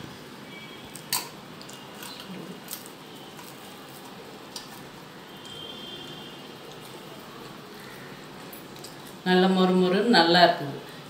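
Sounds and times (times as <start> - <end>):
crisp food crunching: 0.9 - 5.6.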